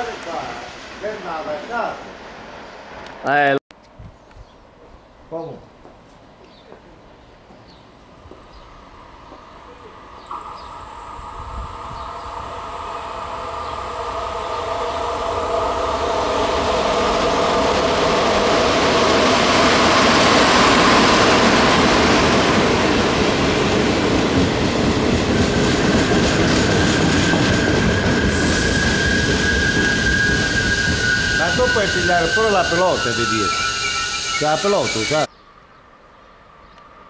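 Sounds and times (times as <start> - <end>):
train rumbling and clattering past: 0.0 - 3.6, 7.4 - 35.2
thin high whine: 8.8 - 18.3, 26.8 - 35.3.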